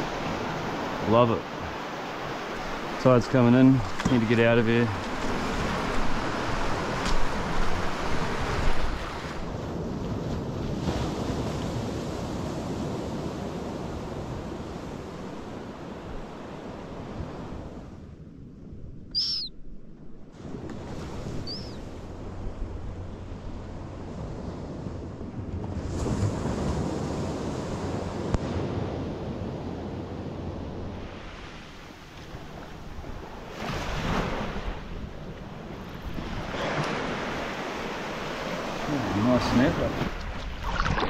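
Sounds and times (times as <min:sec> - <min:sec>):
ocean surf washing in: 0:00.0 - 0:18.1, 0:20.3 - 0:41.0
short high falling chirps: 0:19.1 - 0:19.5.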